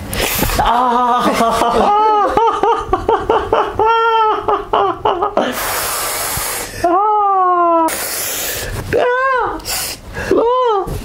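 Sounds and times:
hiss of breath through teeth: 0.1 - 0.6, 5.4 - 6.8, 7.9 - 8.8, 9.6 - 10.2.

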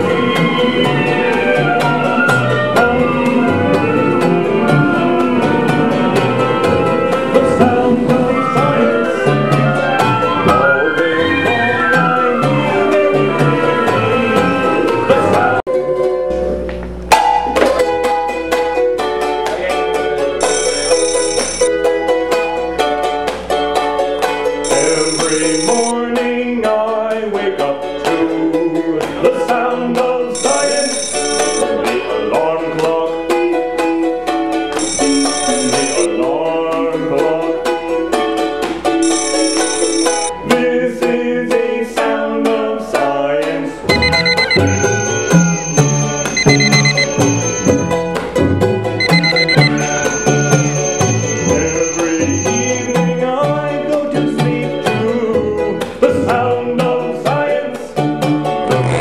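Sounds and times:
live band music: 0.0 - 7.4
acoustic band with plucked strings: 0.0 - 59.0
steady ticking beat: 20.4 - 21.7, 24.7 - 25.9, 30.4 - 31.6, 34.8 - 36.1, 39.0 - 40.3, 43.9 - 48.2, 49.0 - 53.1
blocky bass notes: 43.9 - 51.7.

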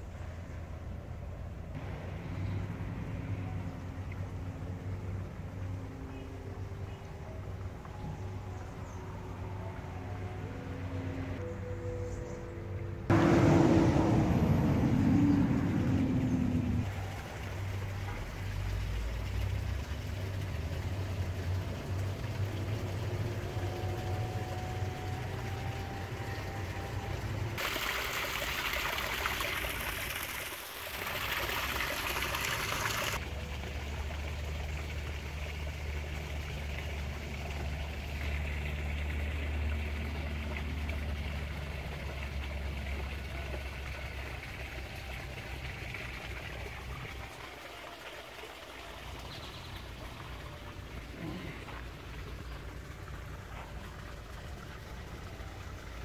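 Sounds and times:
low hum: 0.0 - 27.6
waterfall splashing into pool: 27.6 - 51.9.

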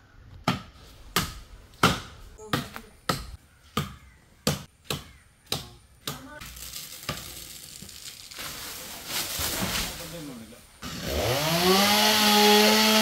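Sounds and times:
rustling hiss: 6.4 - 10.8.

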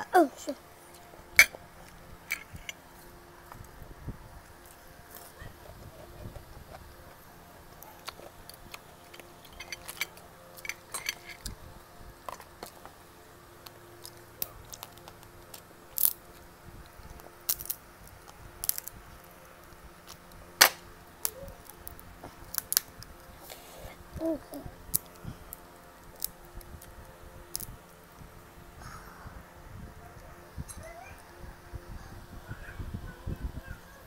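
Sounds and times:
crab shells cracking: 13.6 - 16.4, 17.5 - 18.9, 20.0 - 23.3, 24.9 - 27.7
crab shells snipped with shears: 20.1 - 23.0.

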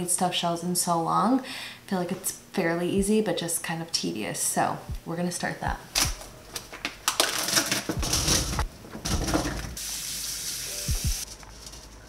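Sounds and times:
dishes and utensils clattering: 7.2 - 9.7
tap water running: 9.1 - 11.2.

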